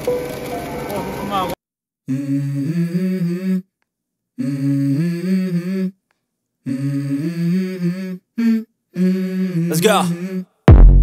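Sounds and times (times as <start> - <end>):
person humming a melody: 2.1 - 3.7, 4.4 - 6.0, 6.6 - 10.8.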